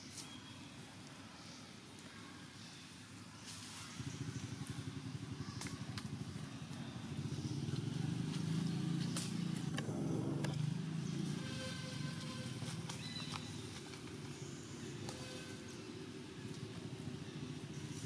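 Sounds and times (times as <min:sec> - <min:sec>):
vehicle engine rumbling: 0:04.0 - 0:14.4.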